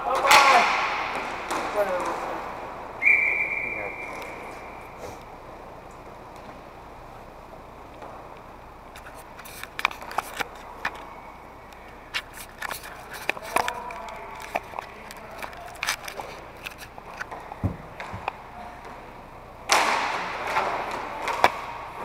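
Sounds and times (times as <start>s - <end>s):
hockey sticks and puck clacking: 0.0s - 2.8s, 7.8s - 22.0s
hall hum: 0.0s - 22.0s.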